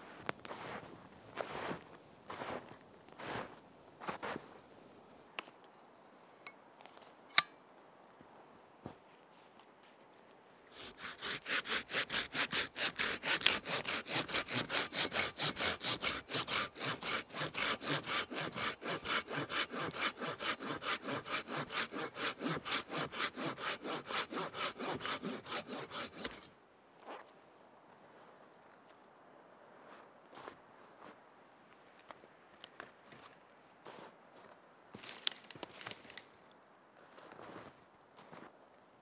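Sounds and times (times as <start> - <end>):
hand saw cutting wood: 10.7 - 26.5.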